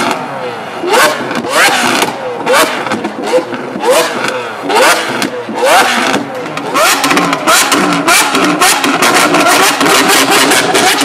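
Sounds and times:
sports car engine revving: 0.0s - 11.0s.

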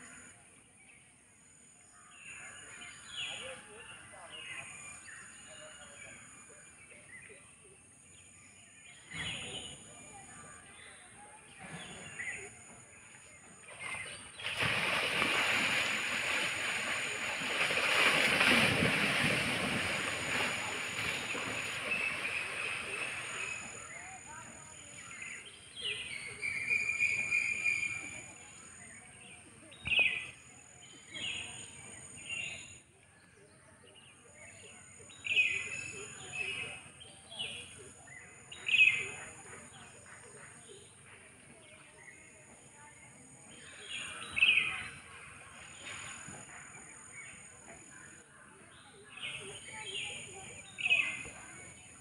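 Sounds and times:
birds calling: 13.3s - 27.8s
water splashing and sloshing: 13.4s - 24.6s
faint bird chirps: 20.2s - 52.0s.

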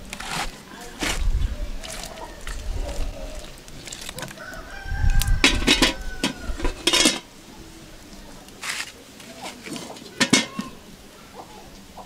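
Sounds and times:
rooster crowing: 4.3s - 6.9s
cooking pot knocking on stones: 5.4s - 7.3s, 9.8s - 10.8s.

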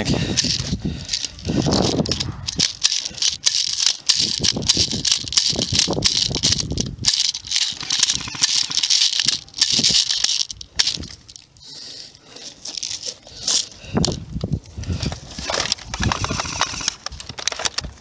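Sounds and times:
magazine clicking and rattling: 0.4s - 11.5s, 12.4s - 18.0s.

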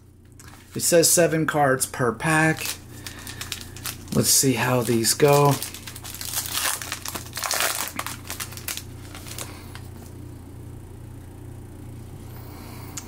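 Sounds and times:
plastic wrapper crinkling: 2.2s - 10.1s.

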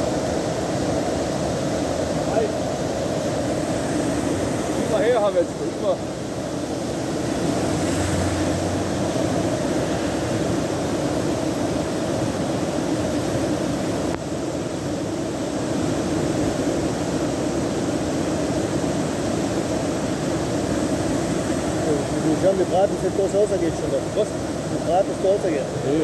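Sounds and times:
flooded stream rushing: 0.0s - 26.0s.

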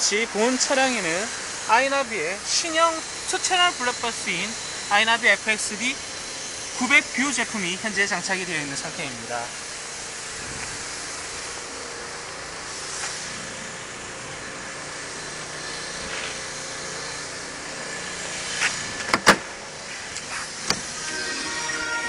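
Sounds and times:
car door latch clicks: 19.1s - 19.5s
music: 21.0s - 22.0s.

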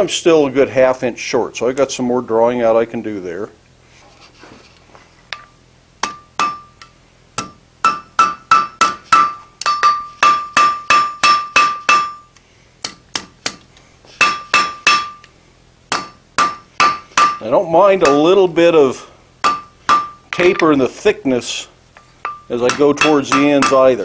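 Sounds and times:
hammer striking iron on anvil: 5.3s - 13.6s, 14.2s - 15.3s, 15.9s - 17.4s, 18.0s - 18.3s, 19.4s - 20.7s, 22.2s - 24.0s.

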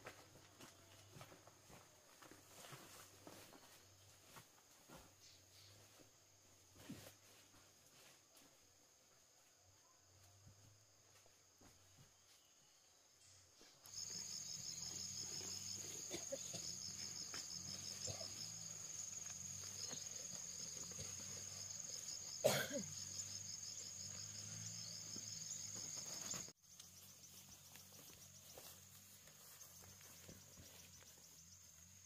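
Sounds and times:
insects whining and trilling: 13.9s - 32.0s.

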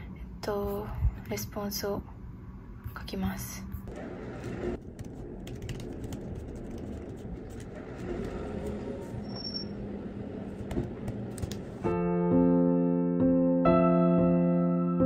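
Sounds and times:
low background rumble: 0.0s - 11.9s
laptop keyboard typing: 3.9s - 9.6s, 10.6s - 11.8s.

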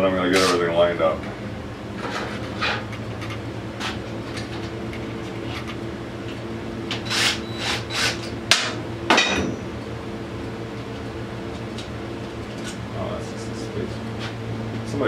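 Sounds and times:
metal tools knocking and clanking: 8.6s - 9.7s.

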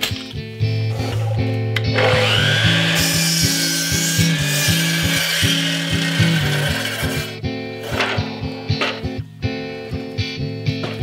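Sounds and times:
rock music: 0.0s - 11.0s
saw blade cutting wood: 0.9s - 8.1s
miter saw whine: 1.9s - 7.4s.

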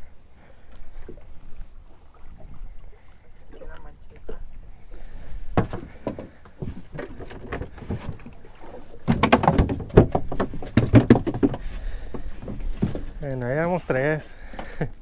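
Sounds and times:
knocks and clatter on a boat: 5.5s - 13.4s.

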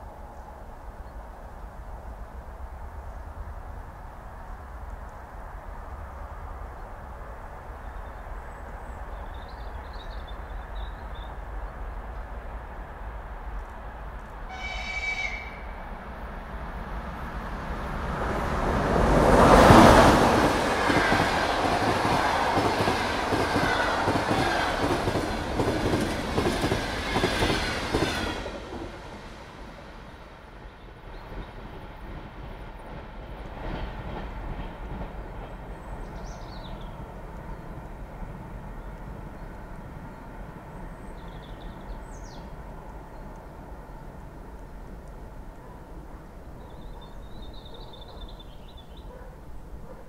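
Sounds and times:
train approaching rumble: 0.0s - 50.0s
locomotive rushing past: 2.3s - 46.6s
high-pitched train horn: 14.5s - 15.9s
train wheels clattering on rails: 19.0s - 29.1s.

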